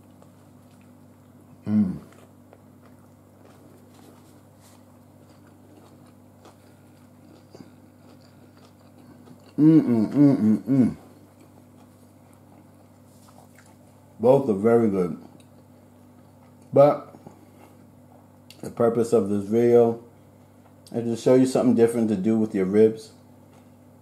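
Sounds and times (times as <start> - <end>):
man chewing food: 0.0 - 14.2, 15.2 - 18.7, 20.2 - 21.0, 23.3 - 24.0
faint low hum: 0.0 - 24.0
man humming mmm of relish: 1.6 - 2.2, 9.5 - 11.2.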